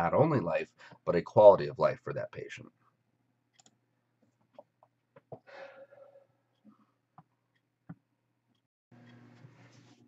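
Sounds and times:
person breathing softly: 5.4s - 6.3s.

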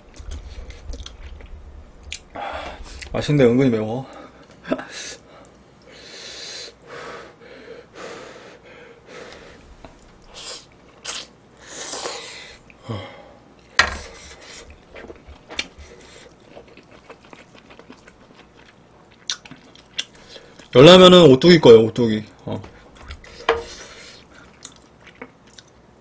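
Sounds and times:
hissing breaths: 2.3s - 3.1s, 4.0s - 10.7s, 11.6s - 14.8s, 23.2s - 24.5s.

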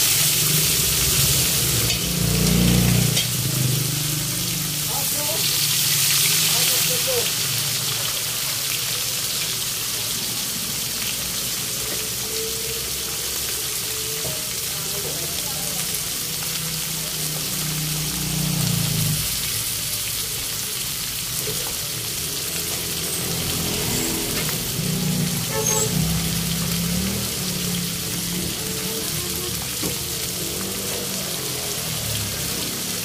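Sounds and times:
fish frying in oil: 0.0s - 33.0s.

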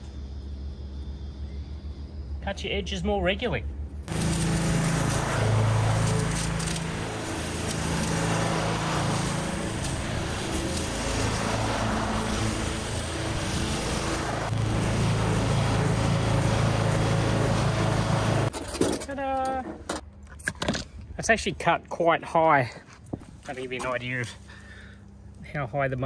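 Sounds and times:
lawn mower engine cutting grass: 4.1s - 18.8s.

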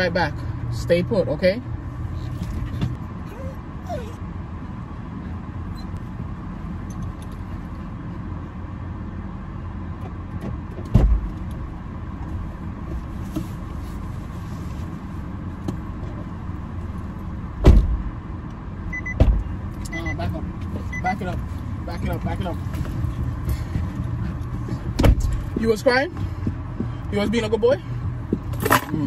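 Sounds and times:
car engine rumble in cabin: 0.0s - 29.0s
dull thump: 10.9s - 11.3s, 17.6s - 18.1s, 19.2s - 19.4s, 24.7s - 25.6s.

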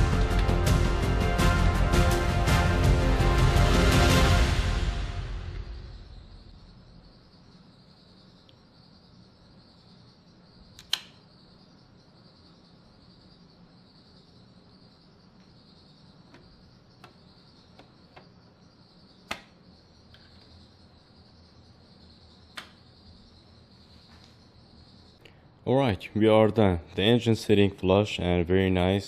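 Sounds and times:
music: 0.0s - 6.3s.

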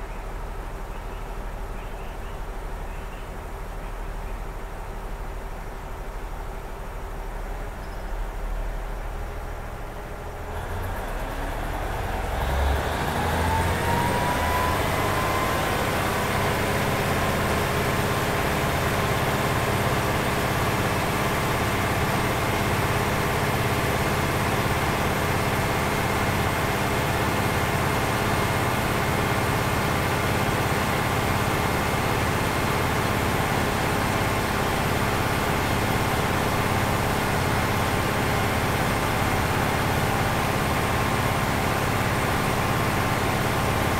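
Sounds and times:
diesel engine revving: 8.7s - 43.9s.

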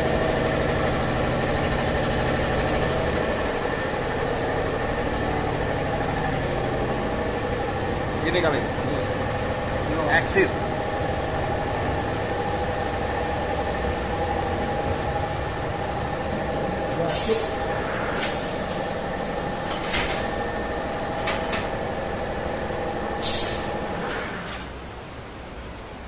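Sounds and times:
generator engine droning: 0.0s - 26.0s.

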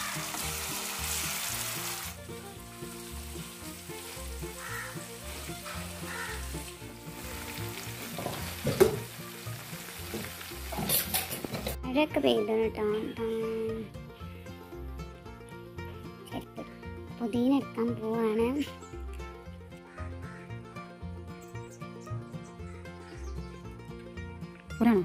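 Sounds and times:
chicken sizzling in oil: 0.0s - 11.8s
soft background music: 0.0s - 25.0s.

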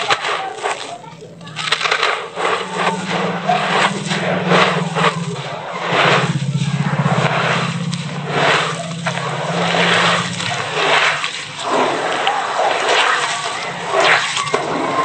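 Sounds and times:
wet cement mix squelching: 0.0s - 15.0s
low steady hum: 0.9s - 12.6s.

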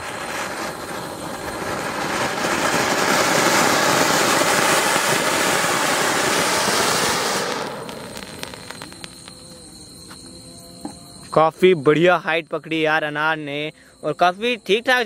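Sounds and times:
firework fountain hissing: 0.0s - 10.1s.

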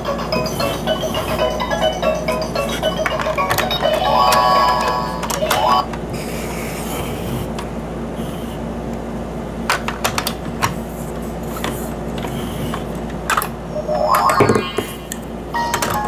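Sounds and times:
toy mechanical whir: 0.3s - 5.9s
plastic parts clicking: 3.0s - 5.8s.

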